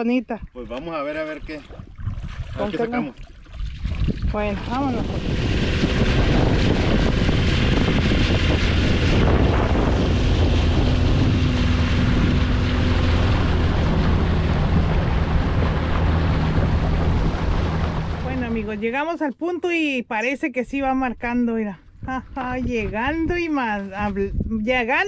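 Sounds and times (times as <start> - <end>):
outboard motor droning: 0.0 - 25.0
wind buffeting microphone: 1.4 - 19.1, 20.7 - 25.0.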